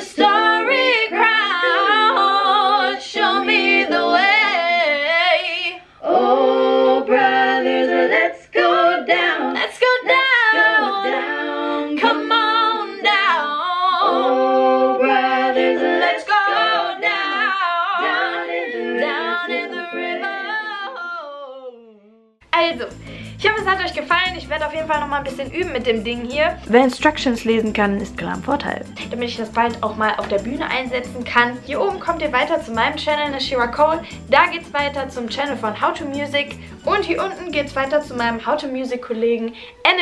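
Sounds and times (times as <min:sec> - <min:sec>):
woman singing a cappella: 0:00.0 - 0:14.3, 0:16.0 - 0:26.6.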